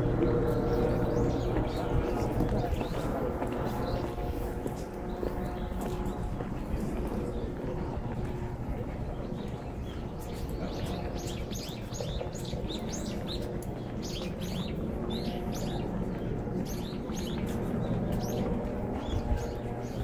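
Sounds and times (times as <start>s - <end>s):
small birds chirping: 0.0s - 4.3s, 7.0s - 20.0s.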